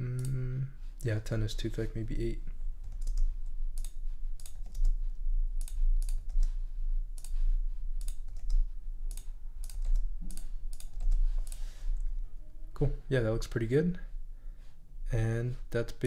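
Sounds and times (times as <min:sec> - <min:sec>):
steady low hum: 0:00.0 - 0:16.0
mouse clicks: 0:08.0 - 0:12.1.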